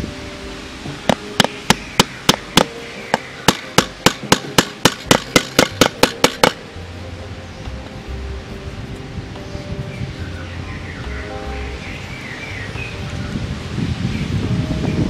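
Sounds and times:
hammer striking nail into wood: 0:01.1 - 0:06.6.

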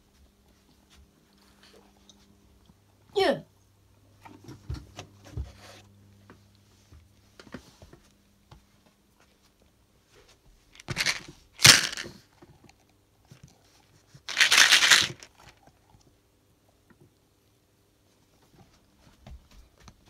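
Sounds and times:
plastic and rubber toys knocking: 0:10.8 - 0:12.1.

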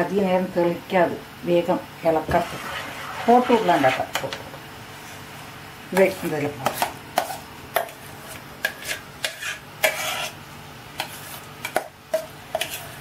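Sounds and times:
wooden spatula scraping frying pan: 0:02.3 - 0:04.4, 0:06.6 - 0:10.4, 0:11.0 - 0:13.0.

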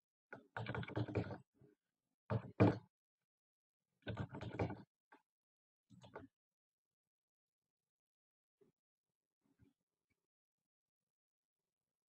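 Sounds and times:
keyboard and mouse clicks: 0:00.3 - 0:01.4, 0:04.1 - 0:04.9.

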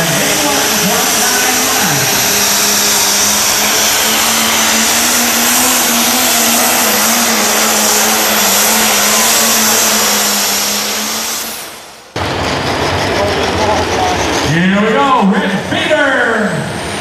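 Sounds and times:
diesel engine running flat out: 0:00.0 - 0:17.0
steady high whine: 0:00.0 - 0:17.0.

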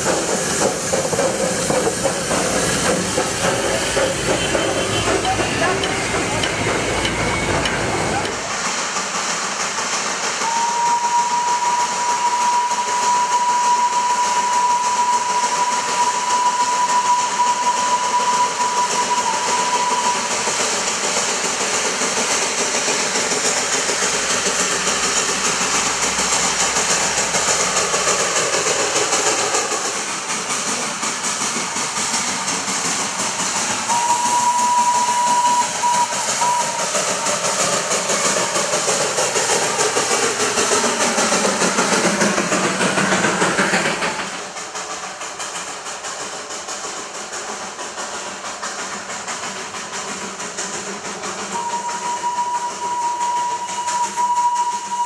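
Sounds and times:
steady steam hiss: 0:00.0 - 0:55.0
steam locomotive whistle: 0:00.3 - 0:08.4, 0:10.4 - 0:20.8, 0:33.7 - 0:39.9, 0:51.5 - 0:55.0.

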